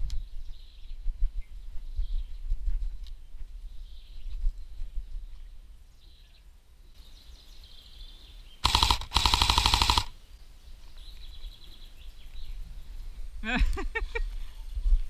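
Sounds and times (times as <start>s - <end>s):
airsoft rifle firing bursts: 8.6s - 10.2s.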